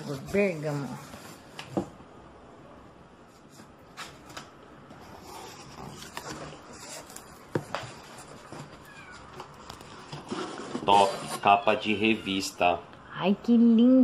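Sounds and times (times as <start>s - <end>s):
cardboard and bubble wrap rustling: 3.3s - 12.4s.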